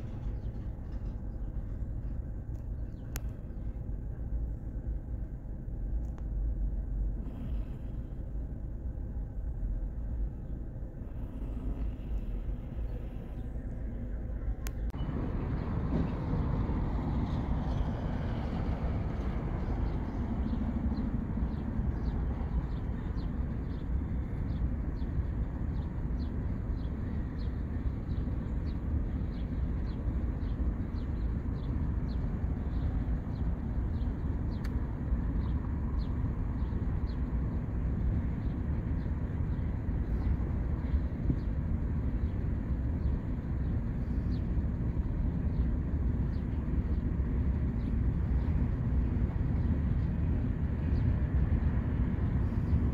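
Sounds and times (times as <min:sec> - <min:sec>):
regular clicks of train wheels: 0:00.0 - 0:05.2, 0:28.2 - 0:37.3
freight train rumbling past: 0:00.0 - 0:52.9.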